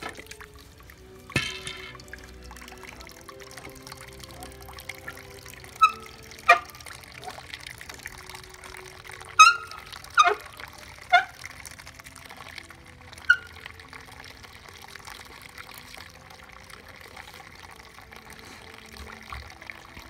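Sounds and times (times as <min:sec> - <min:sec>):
juice trickling into a steel pot: 0:00.0 - 0:20.0.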